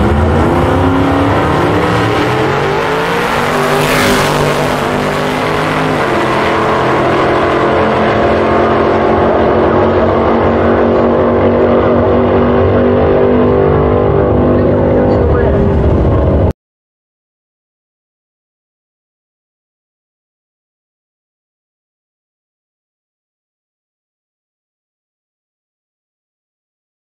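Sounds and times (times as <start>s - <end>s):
drag cars accelerating: 0.0s - 16.5s.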